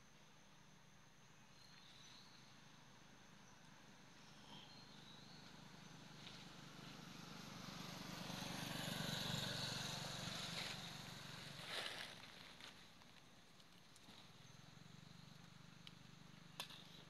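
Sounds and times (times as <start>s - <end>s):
vehicle engine passing: 5.4s - 12.3s.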